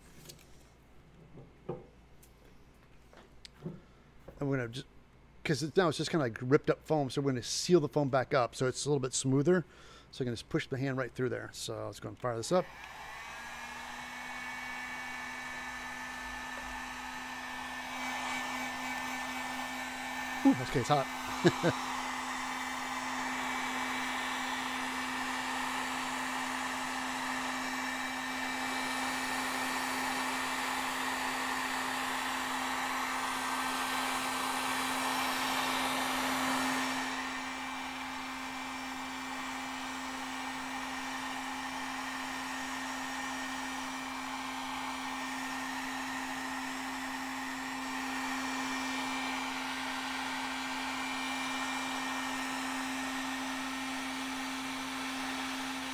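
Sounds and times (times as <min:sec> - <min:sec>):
heat gun blowing: 0:12.2 - 0:55.9.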